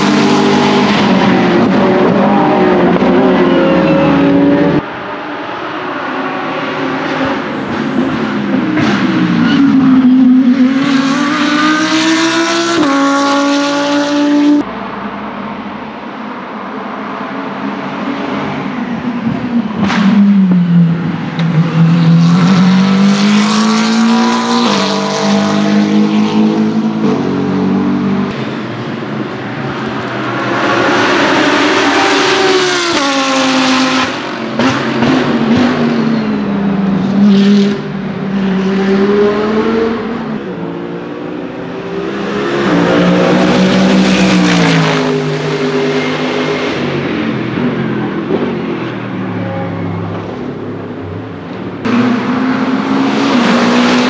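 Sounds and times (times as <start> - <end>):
race cars accelerating and upshifting: 0.0 - 54.0.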